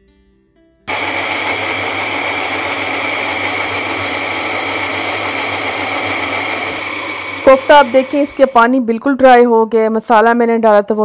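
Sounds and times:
electric blender running: 0:00.9 - 0:08.7.

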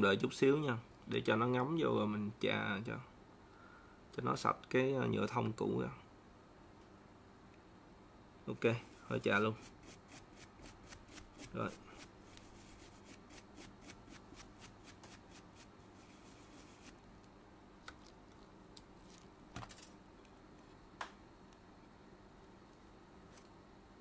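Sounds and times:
brush scrubbing circuit board: 0:08.8 - 0:17.0.

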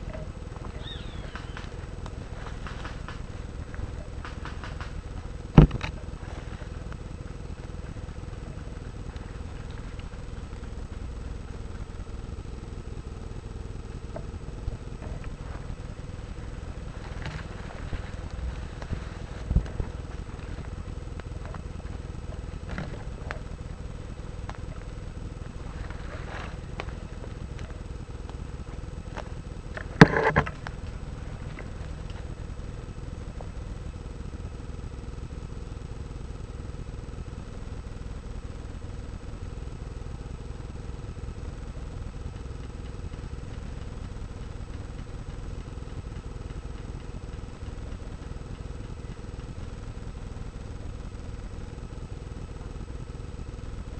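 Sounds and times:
camera handling rumble: 0:00.0 - 0:12.4, 0:14.0 - 0:33.8.

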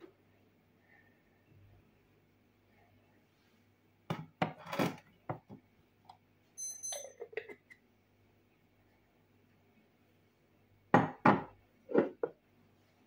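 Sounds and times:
high ringing clink: 0:06.6 - 0:07.4.

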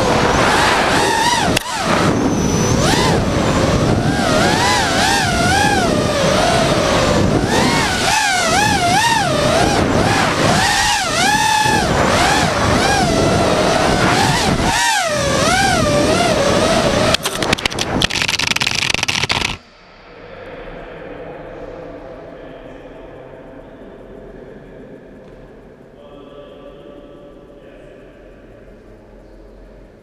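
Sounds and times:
drone motors whining: 0:00.0 - 0:19.6.

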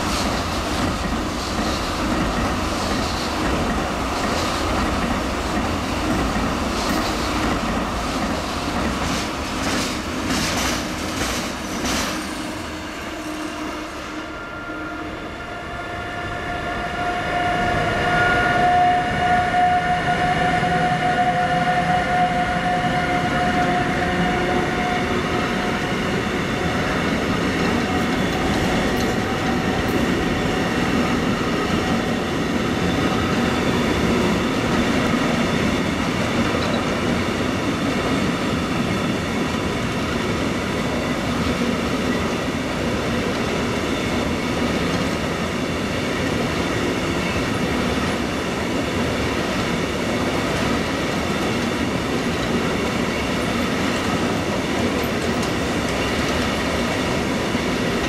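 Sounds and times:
freight train wheels clattering: 0:00.0 - 0:12.6, 0:38.9 - 0:58.0.

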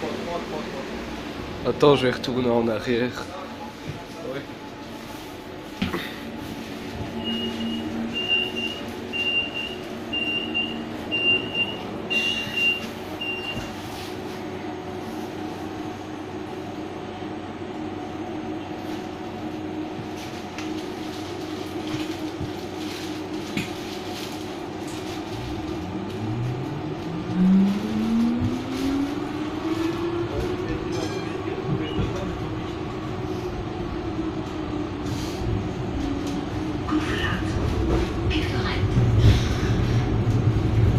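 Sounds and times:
tram running noise: 0:00.0 - 0:40.9
traction motors whining: 0:24.9 - 0:38.6.

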